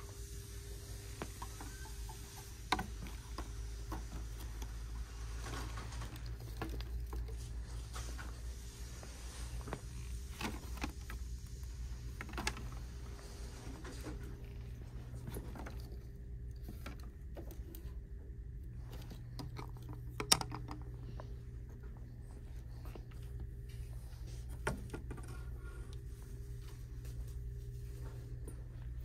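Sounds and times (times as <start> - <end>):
steady low hum: 0.0 - 29.0
hanging signs clicking together: 19.3 - 21.0.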